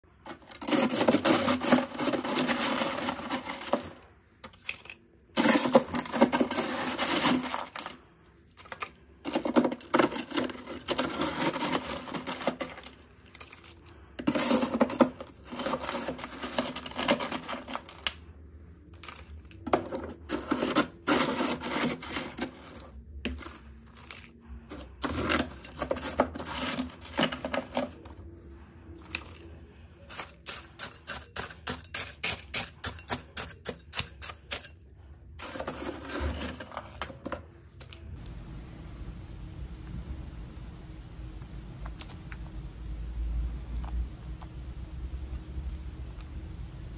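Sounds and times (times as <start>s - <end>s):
scraper scraping frost off plastic: 0.2s - 4.8s, 5.4s - 18.2s, 19.1s - 28.1s, 29.0s - 34.7s, 35.4s - 37.3s.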